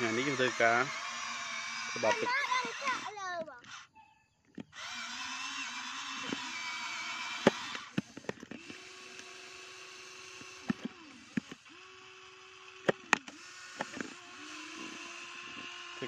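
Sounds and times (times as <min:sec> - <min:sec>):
toy motors and gears whirring: 0:00.0 - 0:16.0
sharp clicks: 0:10.4 - 0:11.6.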